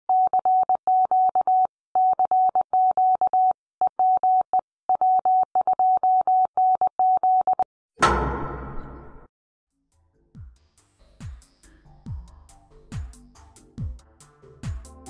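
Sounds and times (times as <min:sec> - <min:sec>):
morse code beeps: 0:00.1 - 0:07.6.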